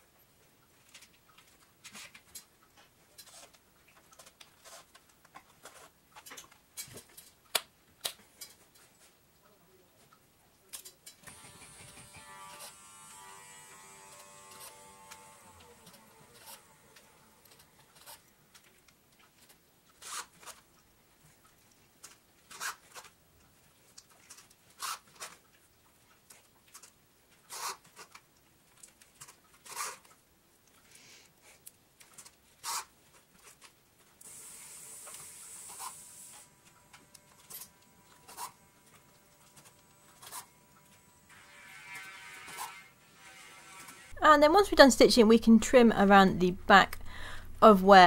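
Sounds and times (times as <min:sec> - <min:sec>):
scratchy leather stitching rasps: 0:03.2 - 0:03.6, 0:04.6 - 0:05.0, 0:20.0 - 0:20.6, 0:22.5 - 0:23.1, 0:24.8 - 0:25.4, 0:27.5 - 0:28.2, 0:29.6 - 0:30.1, 0:32.6 - 0:33.6, 0:35.2 - 0:36.4, 0:38.2 - 0:38.6, 0:40.2 - 0:40.5, 0:41.3 - 0:44.2
steady hiss: 0:34.2 - 0:38.7.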